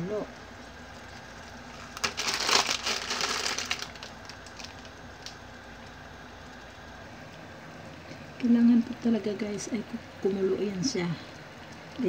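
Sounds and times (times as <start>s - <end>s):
plastic packet crinkling: 1.4s - 6.0s.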